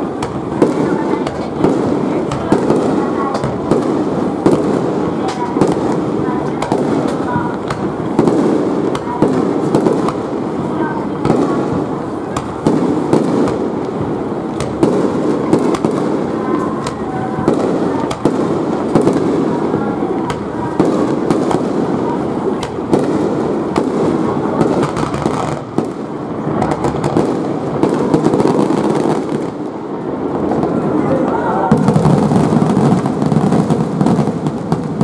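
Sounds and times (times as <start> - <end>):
firework booms: 0.0 - 35.0
firework cracks: 0.0 - 35.0.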